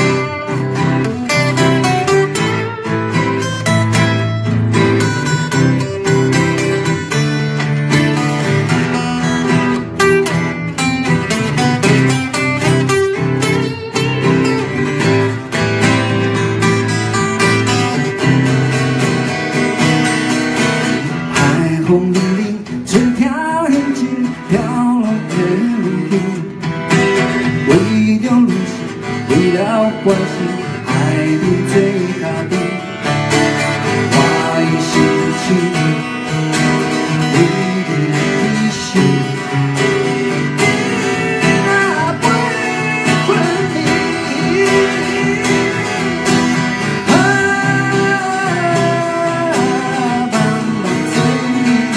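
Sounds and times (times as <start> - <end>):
acoustic guitars playing: 0.0 - 51.9
man singing: 21.0 - 26.7, 27.4 - 51.9.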